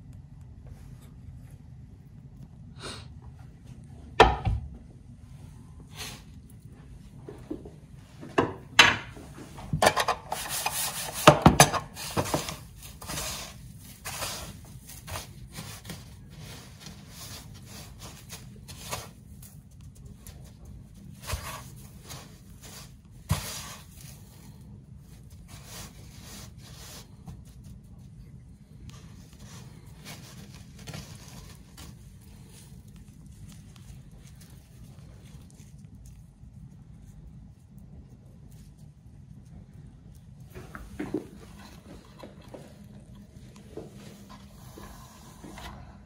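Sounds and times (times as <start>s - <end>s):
rubbing and scraping: 9.4s - 36.2s.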